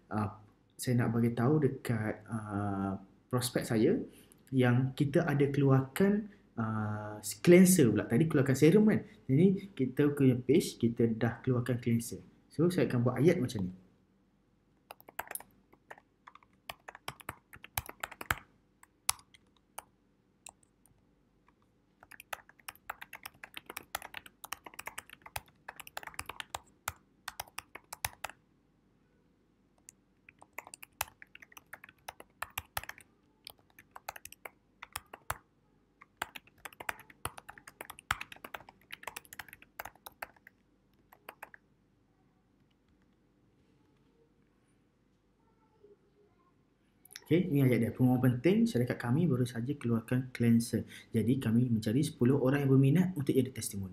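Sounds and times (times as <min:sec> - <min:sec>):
computer keyboard typing: 0:14.9 - 0:19.9, 0:22.0 - 0:28.4, 0:29.8 - 0:35.4, 0:36.0 - 0:41.6.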